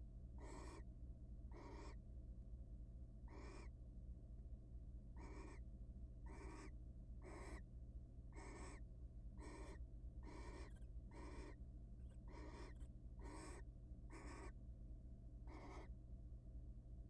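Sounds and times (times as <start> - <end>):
barn owl rasping hissing call: 0.4 - 0.8, 1.5 - 2.0, 3.3 - 3.7, 5.2 - 5.6, 6.3 - 7.6, 8.3 - 8.8, 9.4 - 11.6, 12.3 - 14.6, 15.5 - 15.9.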